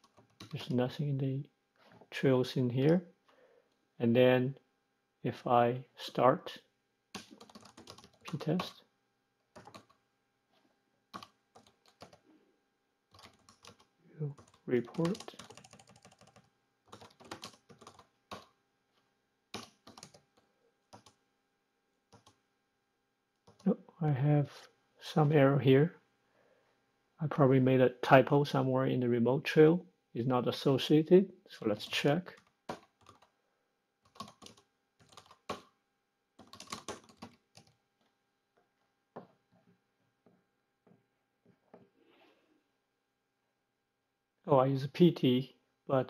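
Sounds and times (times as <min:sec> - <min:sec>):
keyboard typing: 0:00.0 - 0:00.7, 0:07.1 - 0:08.8, 0:09.5 - 0:10.0, 0:11.1 - 0:12.2, 0:13.1 - 0:18.6, 0:19.5 - 0:21.2, 0:22.1 - 0:22.4, 0:23.4 - 0:23.7, 0:31.8 - 0:33.3, 0:34.0 - 0:35.7, 0:36.4 - 0:37.8.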